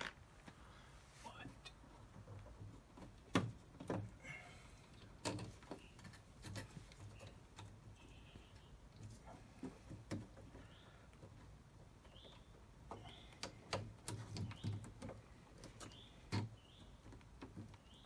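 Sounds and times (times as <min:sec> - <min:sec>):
wires clicking and tapping: 0:04.8 - 0:18.0.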